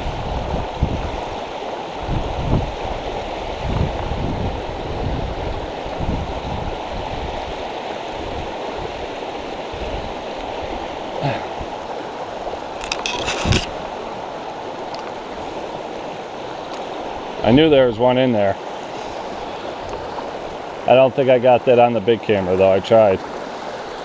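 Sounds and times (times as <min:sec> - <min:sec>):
wind buffeting microphone: 0:00.0 - 0:01.3, 0:02.0 - 0:07.5
fast stream rushing over rocks: 0:00.0 - 0:24.0.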